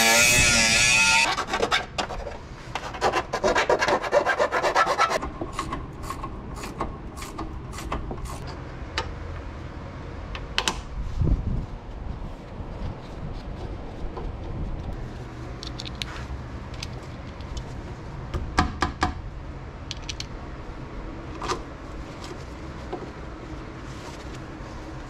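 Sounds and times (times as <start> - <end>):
pitched tool whine: 0.0 - 1.3.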